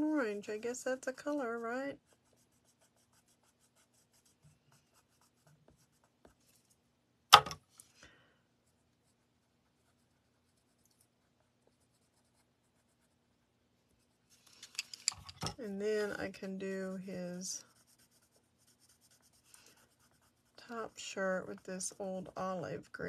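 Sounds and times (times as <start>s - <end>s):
pencil scratching on card: 1.0s - 6.7s, 8.6s - 13.4s, 15.8s - 22.4s
pencil set down on table: 7.3s - 7.6s.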